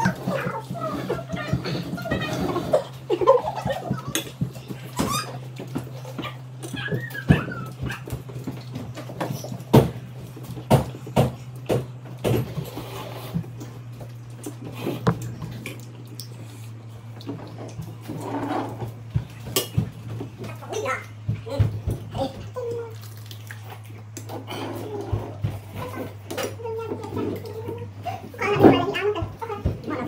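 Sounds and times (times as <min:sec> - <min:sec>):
low hum: 0:11.9 - 0:28.1
sharp knocks and clatter: 0:15.0 - 0:15.9.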